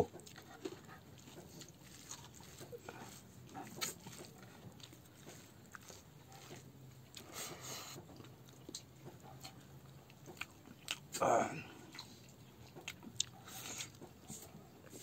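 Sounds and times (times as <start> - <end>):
fingers squishing food: 0.1 - 11.2.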